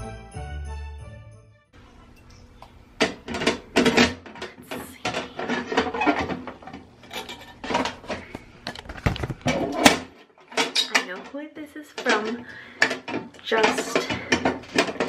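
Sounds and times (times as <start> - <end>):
woman talking: 10.9 - 12.7, 13.4 - 14.4.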